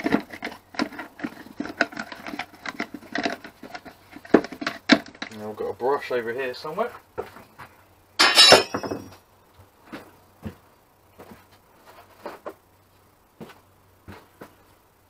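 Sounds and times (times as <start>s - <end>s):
hard objects clattering and clinking: 8.2s - 9.2s.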